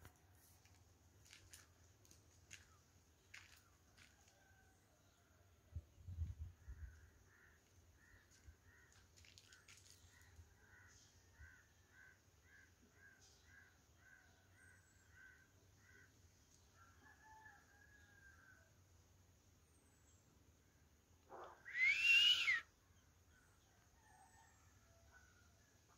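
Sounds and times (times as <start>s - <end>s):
faint bird calls: 6.4s - 16.2s, 21.2s - 24.1s.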